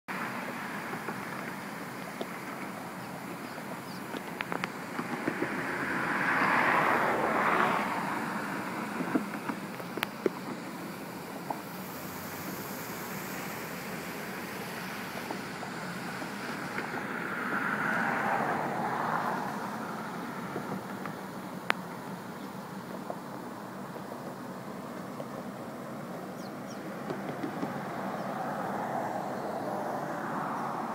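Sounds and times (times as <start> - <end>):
floodwater rushing: 2.3 - 9.4.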